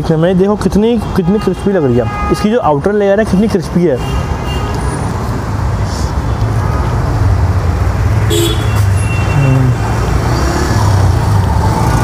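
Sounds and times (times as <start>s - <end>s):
vehicle engine rumble: 5.0s - 12.0s.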